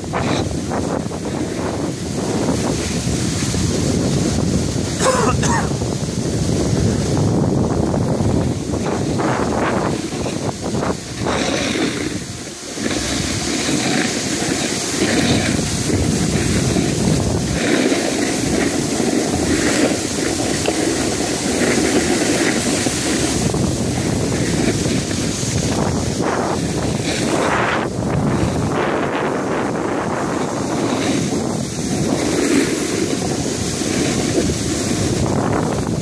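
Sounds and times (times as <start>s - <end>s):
wind buffeting microphone: 0.0s - 36.0s.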